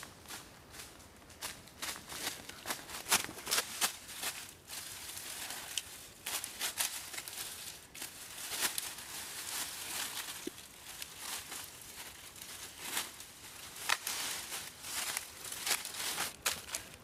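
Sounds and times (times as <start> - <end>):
dry leaves crunching underfoot: 0.0 - 17.0.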